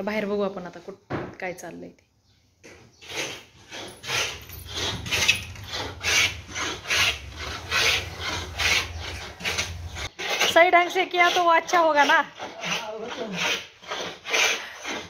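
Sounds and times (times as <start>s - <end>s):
rasp scraping plywood: 3.0s - 15.0s.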